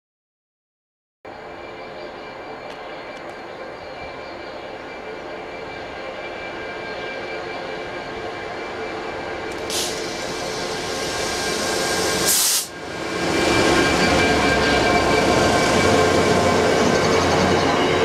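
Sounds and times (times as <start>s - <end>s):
diesel locomotive passing: 1.3s - 18.0s
loud hiss burst: 9.6s - 12.8s.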